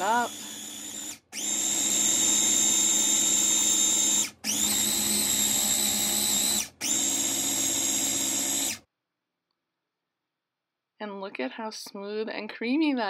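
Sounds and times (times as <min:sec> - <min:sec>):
food processor motor whine: 0:00.0 - 0:08.9.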